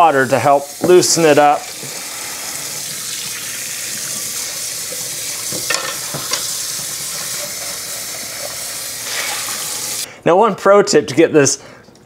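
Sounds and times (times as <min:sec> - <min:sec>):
tap water splashing into skillet: 0:00.8 - 0:02.0, 0:04.1 - 0:09.8.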